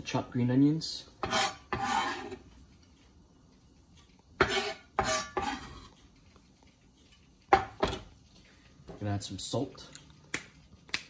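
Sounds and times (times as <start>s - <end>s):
knife scraping cutting board: 1.2s - 2.4s, 4.4s - 6.0s.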